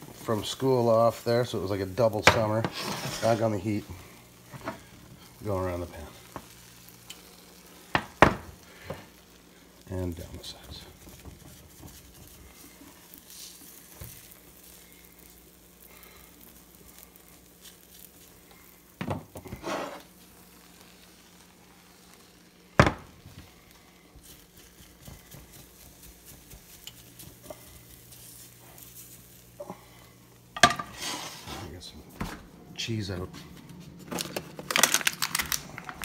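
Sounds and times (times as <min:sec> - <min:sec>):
egg sizzling in a frying pan: 0:00.0 - 0:31.5
spatula scraping a pan: 0:02.4 - 0:03.6, 0:19.4 - 0:20.8, 0:30.6 - 0:31.7.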